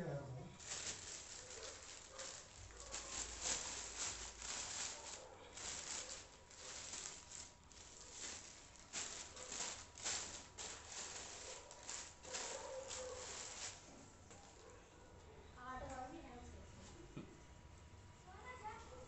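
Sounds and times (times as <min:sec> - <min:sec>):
plastic bag rustling: 0:00.5 - 0:14.7.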